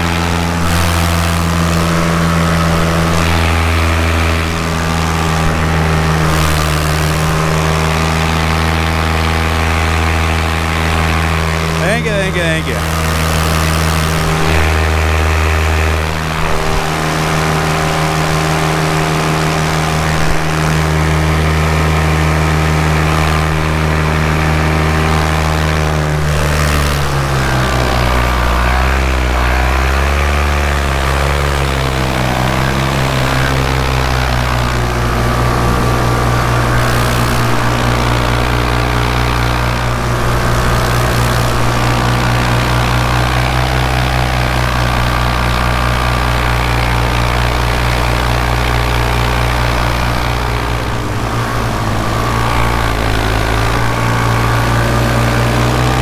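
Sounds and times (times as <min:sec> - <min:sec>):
engine droning: 0:00.0 - 0:56.0.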